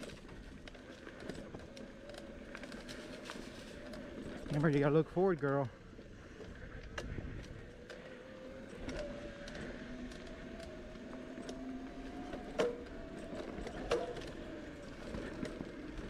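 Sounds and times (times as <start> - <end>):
bicycle clicks and rattles: 0.0 - 16.0
bicycle rolling on dirt trail: 0.0 - 16.0.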